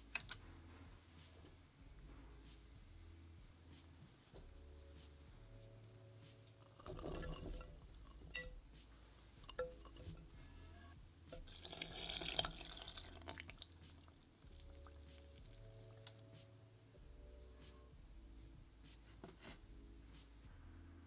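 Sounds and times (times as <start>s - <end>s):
milk pouring and splashing: 6.7s - 8.1s, 11.4s - 16.2s.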